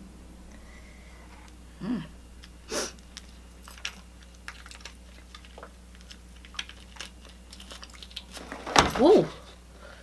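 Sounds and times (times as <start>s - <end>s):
person humming: 1.7s - 2.2s
wet chewing and mouth smacks: 2.4s - 8.4s
breath hiss: 2.7s - 3.0s.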